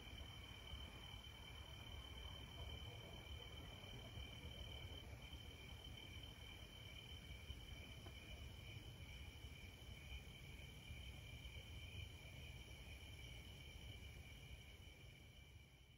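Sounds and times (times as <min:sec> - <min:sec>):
crickets trilling: 0:00.0 - 0:15.9.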